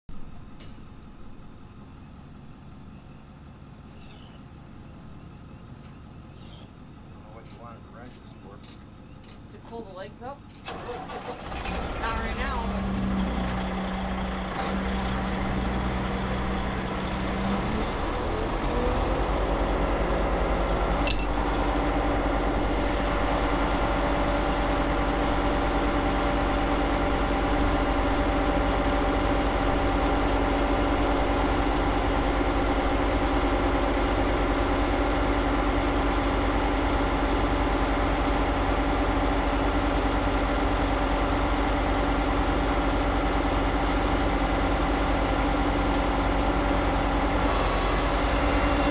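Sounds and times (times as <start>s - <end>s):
machine engine running: 10.7s - 48.9s
sharp metal clink: 21.0s - 21.4s.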